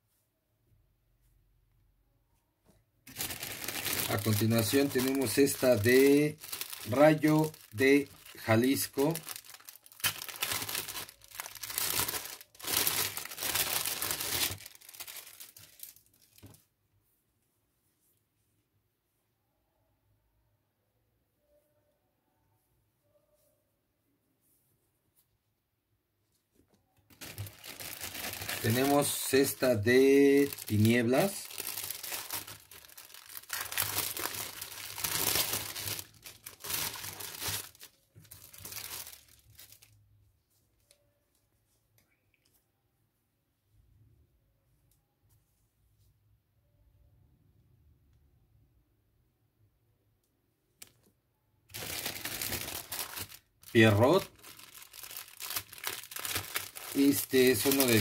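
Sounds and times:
plastic bag crinkling: 0:03.1 - 0:16.5, 0:27.1 - 0:40.0, 0:51.7 - 0:58.0.

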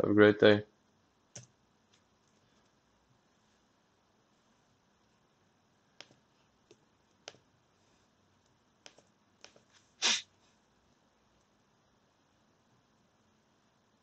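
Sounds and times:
computer mouse clicks: 0:01.3 - 0:02.4, 0:08.4 - 0:09.6
sharp burst of breath: 0:10.0 - 0:10.3.

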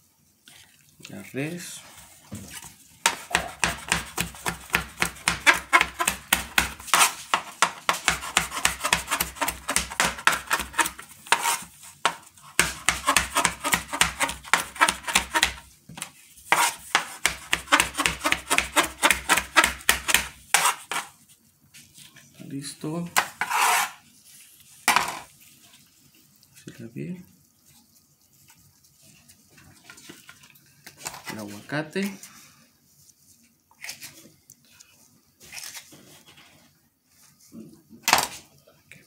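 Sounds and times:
knife chopping on plastic board: 0:03.0 - 0:21.1, 0:23.1 - 0:23.8.

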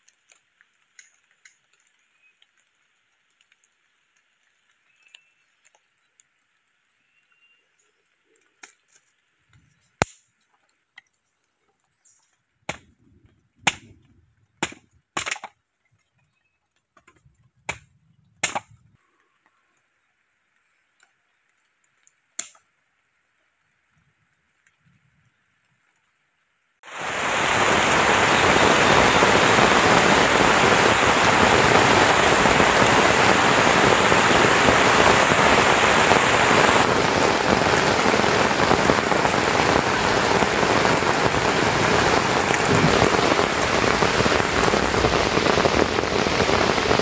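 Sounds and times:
quiet clicks and rustles: 0:00.0 - 0:14.2, 0:19.0 - 0:26.2
bamboo cracking as it splits: 0:09.8 - 0:10.8, 0:14.6 - 0:15.6, 0:17.6 - 0:18.7, 0:22.4 - 0:22.7.

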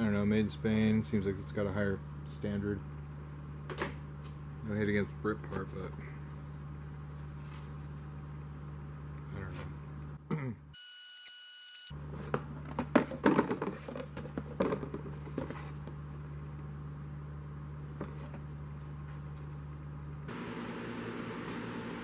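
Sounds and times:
steady low hum: 0:00.0 - 0:10.8.

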